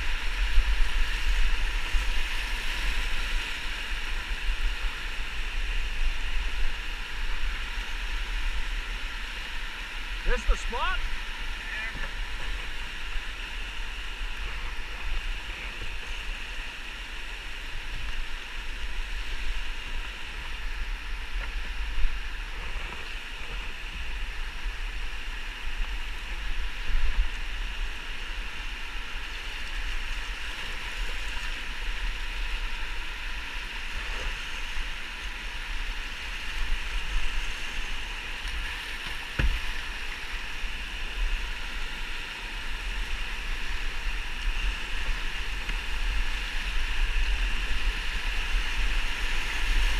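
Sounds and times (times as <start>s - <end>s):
whitewater rushing: 8.8s - 18.0s
canoe knocks: 39.3s - 39.8s.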